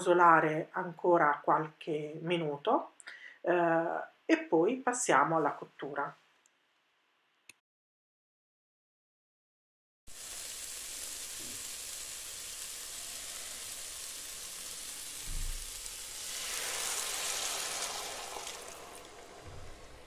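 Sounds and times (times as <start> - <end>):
food sizzling in a pot: 10.1 - 20.0
low thump: 15.2 - 15.8, 19.4 - 19.8.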